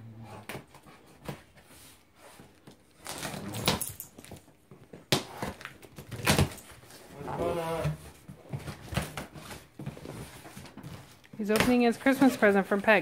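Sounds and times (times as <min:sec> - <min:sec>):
packing tape ripping: 0:03.0 - 0:03.9.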